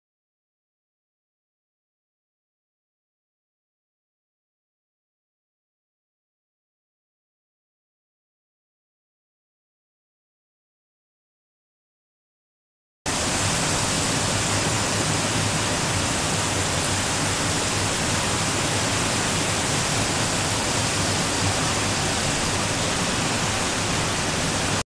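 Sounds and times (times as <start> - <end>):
water rushing through channel: 13.1 - 24.8.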